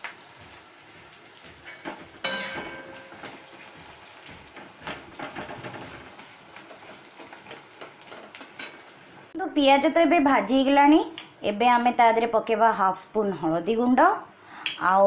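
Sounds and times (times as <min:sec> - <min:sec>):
onions frying in oil: 0:00.0 - 0:09.5
spatula clanging on pan: 0:01.4 - 0:09.0.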